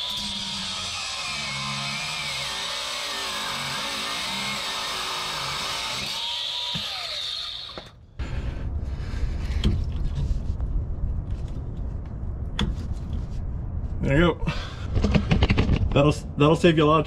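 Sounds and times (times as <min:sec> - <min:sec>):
angle grinder cutting metal: 0:00.0 - 0:08.0.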